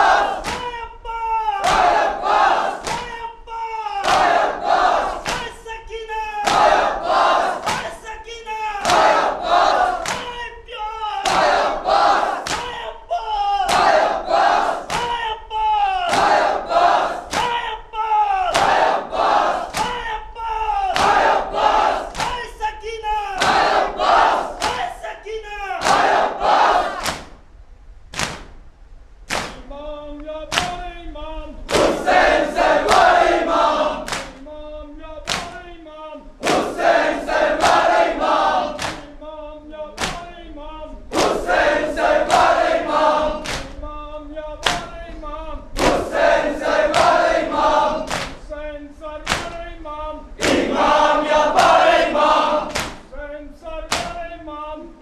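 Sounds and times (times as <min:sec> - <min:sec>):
men chanting lament: 0:00.0 - 0:27.0, 0:29.5 - 0:55.0
hands striking chests: 0:07.6 - 0:07.9.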